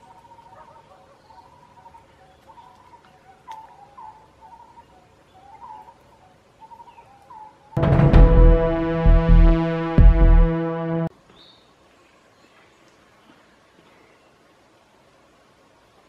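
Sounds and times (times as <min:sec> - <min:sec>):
loud synthesizer music: 0:07.8 - 0:11.1.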